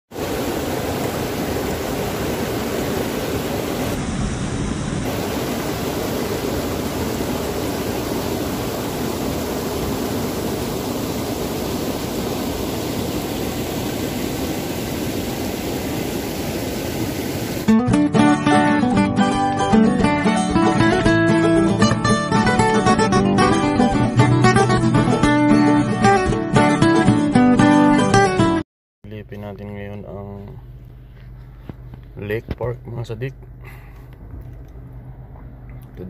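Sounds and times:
water rushing over weir: 0.1 - 17.7.

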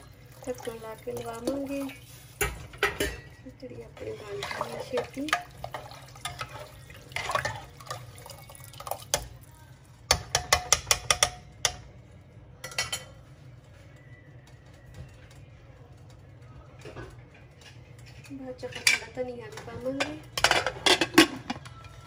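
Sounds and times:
liquid swishing in a pot: 0.0 - 9.4
metal ladle clinking against pot: 1.4 - 3.4.

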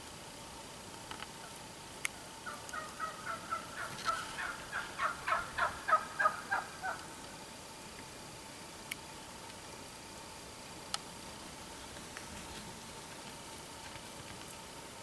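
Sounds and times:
wild turkey calling: 1.4 - 7.2.

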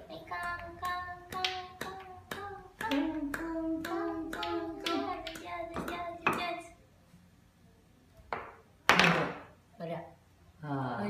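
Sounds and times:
steady hum-like tone: 0.0 - 8.8.

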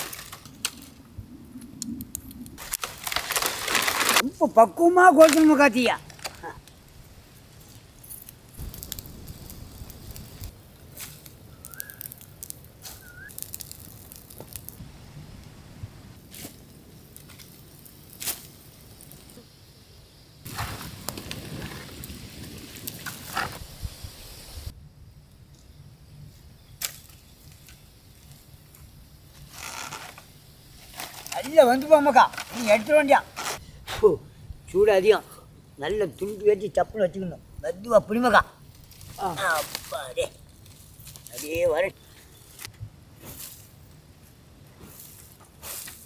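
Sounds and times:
brush fire crackling and snapping: 0.0 - 46.0
bird chirps: 11.5 - 12.2, 12.9 - 13.4.

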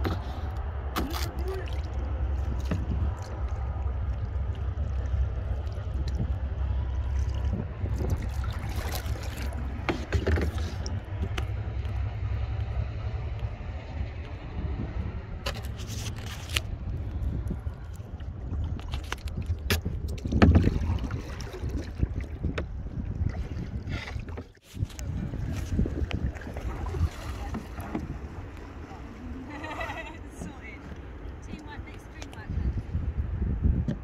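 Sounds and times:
paddle strokes in water: 0.0 - 12.7, 15.4 - 32.7
steady low rumble: 0.0 - 34.0
paddle knocking against kayak: 8.6 - 11.6, 19.7 - 22.8, 25.6 - 32.4.

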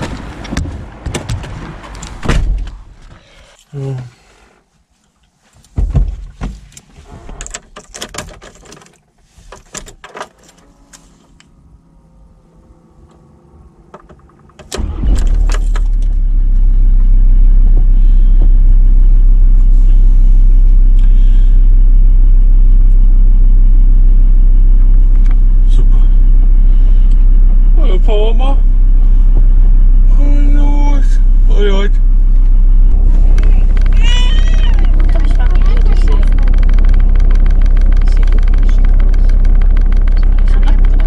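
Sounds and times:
van engine idling: 10.6 - 41.0.

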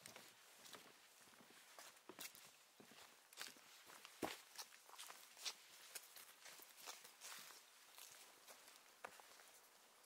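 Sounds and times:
boots footsteps on soil path: 0.0 - 10.0.

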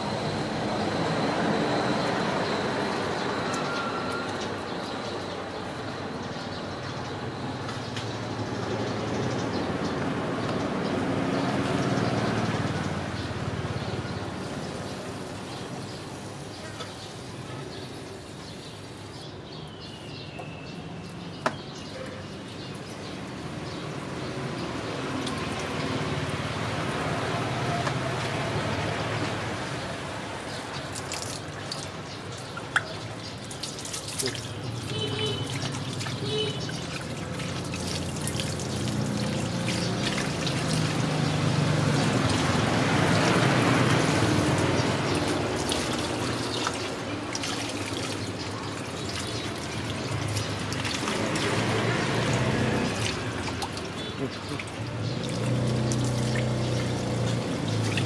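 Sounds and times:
hose water splashing: 22.7 - 58.0.

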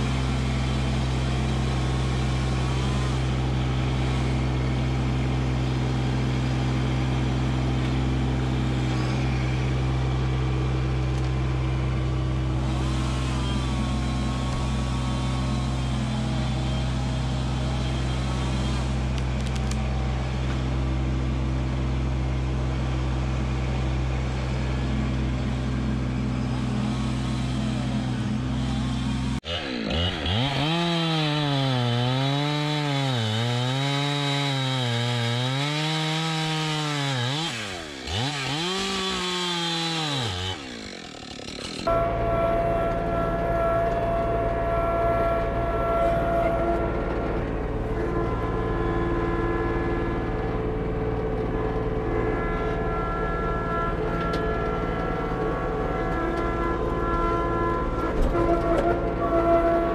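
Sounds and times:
chainsaw cutting log: 0.0 - 20.8, 22.8 - 42.0
tractor diesel engine running: 0.0 - 59.9.

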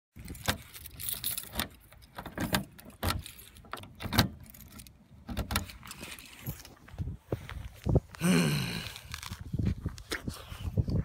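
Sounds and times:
keys jangling: 0.2 - 4.9.

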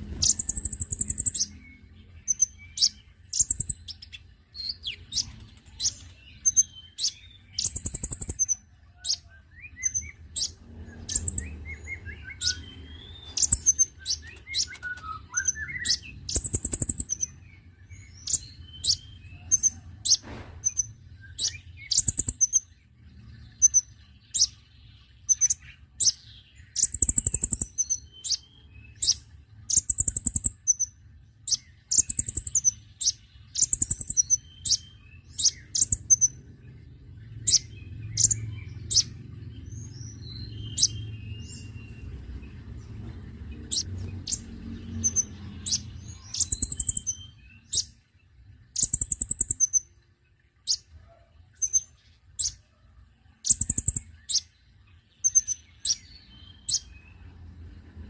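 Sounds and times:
bird falling twittering phrase: 0.0 - 1.4
sunbird high chirps: 0.0 - 52.7, 53.4 - 57.7.

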